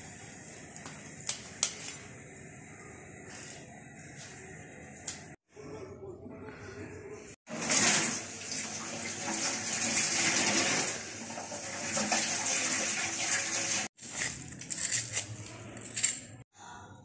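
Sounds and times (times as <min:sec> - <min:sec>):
tap water running into colander: 0:07.5 - 0:13.9.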